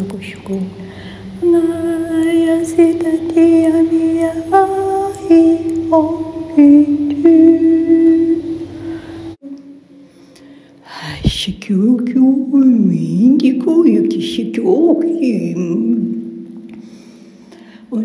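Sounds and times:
woman singing long held notes: 1.4s - 9.7s.

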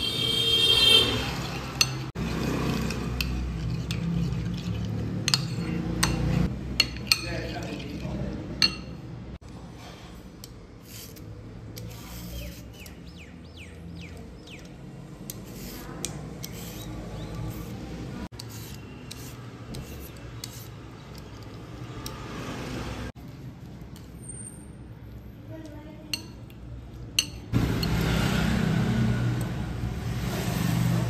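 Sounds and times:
peeler scraping cucumber: 1.0s - 8.3s, 10.8s - 13.4s, 14.0s - 22.2s.

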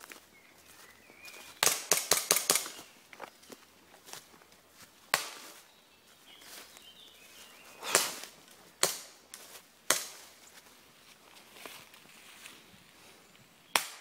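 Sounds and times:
airsoft gun shots: 1.6s - 2.8s, 7.8s - 8.2s, 13.8s - 14.0s.

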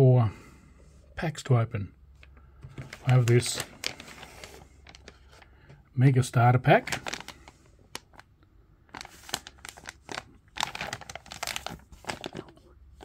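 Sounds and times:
plastic packaging crinkling: 2.7s - 5.6s, 6.7s - 13.0s.

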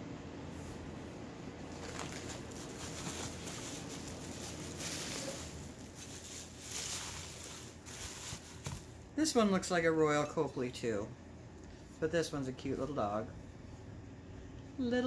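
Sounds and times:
packing material rustling: 1.6s - 9.0s.

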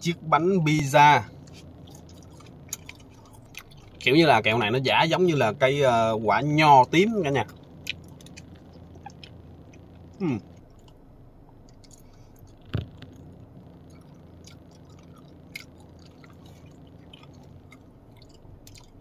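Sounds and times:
person chewing gummy candy: 1.4s - 4.1s, 7.3s - 19.0s
short rising hum: 7.5s - 19.0s.

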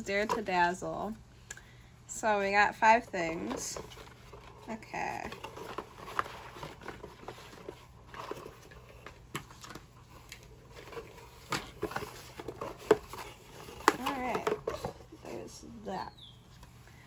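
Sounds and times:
packaging rustling: 3.2s - 15.2s.

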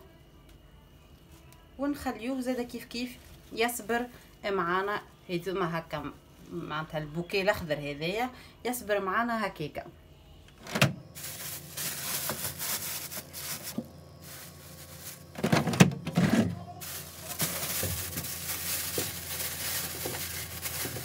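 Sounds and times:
plastic bags rustling: 11.1s - 21.0s.

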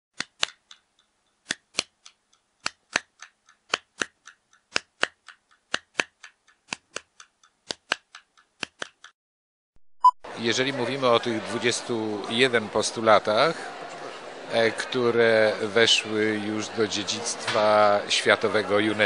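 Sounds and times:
rhythmic dry clicking: 0.4s - 9.1s.

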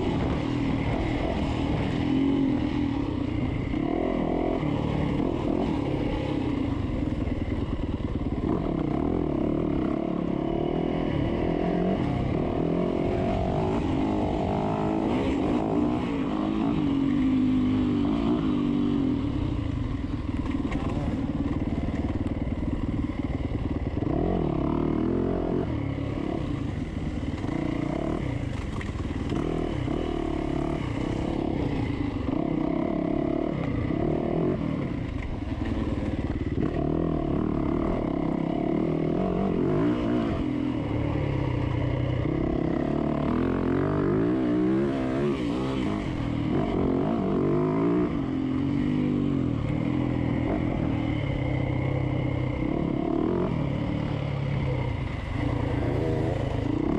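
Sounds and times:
dirt bike engine revving: 23.6s - 56.9s.

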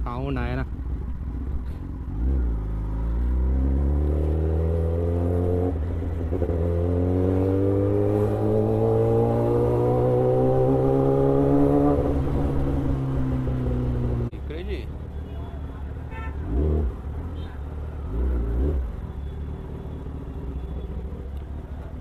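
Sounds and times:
motorcycle engine accelerating: 0.8s - 14.3s.

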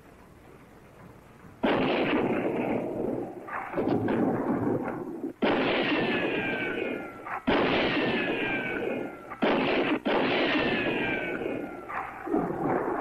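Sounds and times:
short gunshot crack: 1.6s - 2.9s
pistol shots: 1.6s - 13.0s
ricochet whine: 1.6s - 13.0s.

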